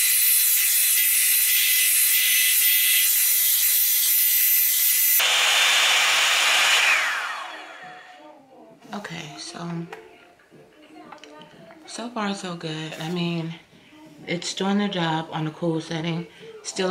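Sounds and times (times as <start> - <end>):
hair dryer fan hissing and whining: 0.0 - 8.3
motor spinning down: 5.0 - 8.1.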